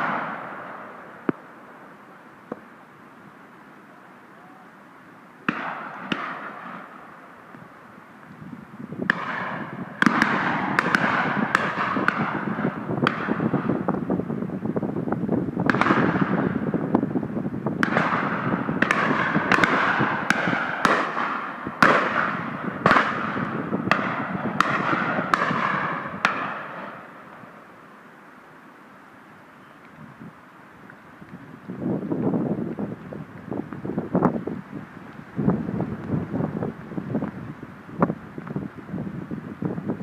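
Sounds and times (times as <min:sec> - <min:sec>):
shotguns firing: 0:00.0 - 0:00.9, 0:05.4 - 0:07.0, 0:09.1 - 0:13.6, 0:15.7 - 0:16.4, 0:17.8 - 0:27.4.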